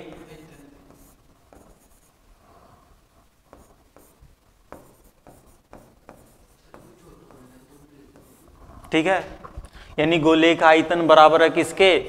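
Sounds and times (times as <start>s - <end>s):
pen scratching on board: 0.8s - 2.2s, 3.5s - 8.7s
pen tip tapping board: 3.5s - 7.4s.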